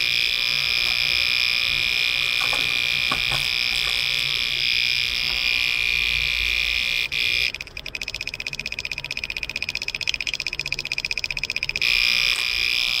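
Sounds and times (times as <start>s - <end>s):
relay buzzer buzzing: 0.0s - 7.7s, 11.8s - 13.0s.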